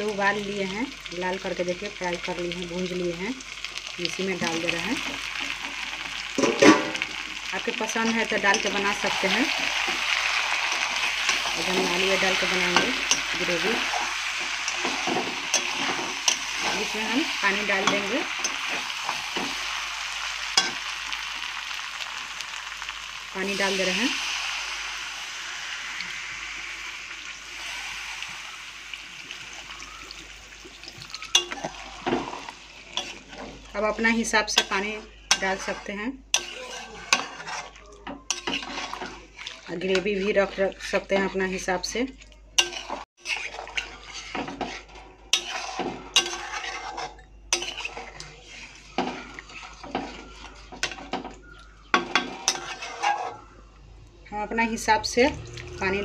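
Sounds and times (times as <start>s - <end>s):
splashing and hissing in hot pan: 0.0s - 41.2s, 42.6s - 53.6s
water poured into hot pan: 23.4s - 32.9s.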